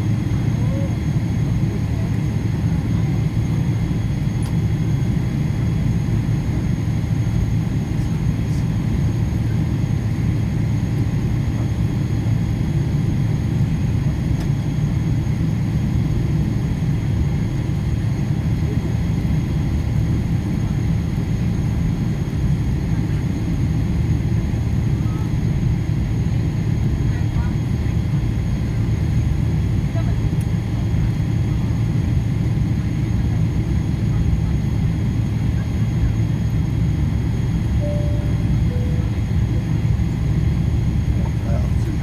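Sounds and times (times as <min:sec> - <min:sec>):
cabin air conditioning: 0:00.0 - 0:42.0
jet engines idling: 0:00.0 - 0:42.0
faint steady high tones: 0:37.8 - 0:39.7.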